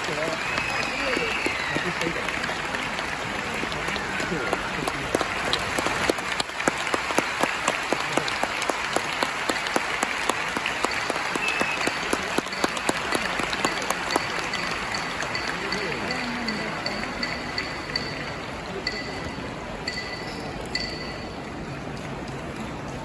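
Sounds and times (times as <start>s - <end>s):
audience applauding: 0.0s - 18.9s.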